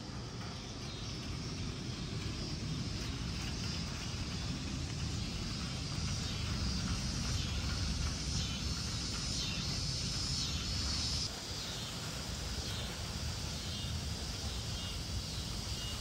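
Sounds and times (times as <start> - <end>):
low rumble: 0.0 - 11.3
cicadas droning: 0.0 - 16.0.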